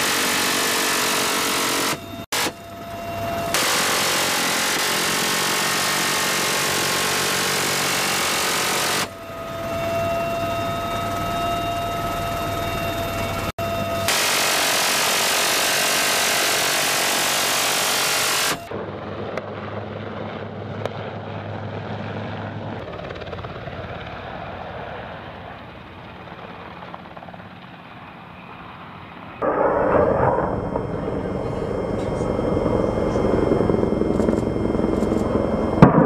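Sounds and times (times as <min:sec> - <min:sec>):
helicopter rotor and wind rush: 0:00.0 - 0:36.0
low rumble: 0:29.4 - 0:36.0.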